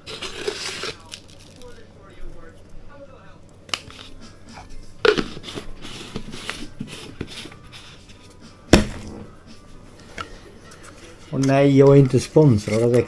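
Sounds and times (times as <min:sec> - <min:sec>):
containers scraping and rattling: 0:00.0 - 0:01.8, 0:03.8 - 0:08.2, 0:10.2 - 0:13.0.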